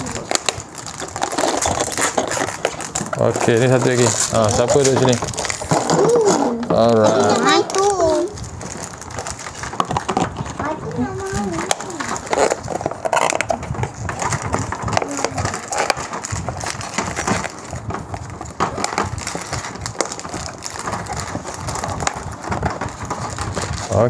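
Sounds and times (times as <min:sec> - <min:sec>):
plastic bricks clicking: 0:00.0 - 0:08.4
plastic bag crinkling: 0:00.0 - 0:24.0.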